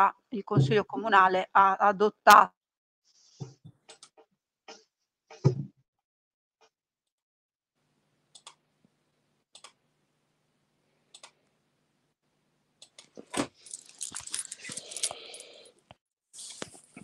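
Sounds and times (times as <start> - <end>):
clattering and rustling: 13.2 - 15.2.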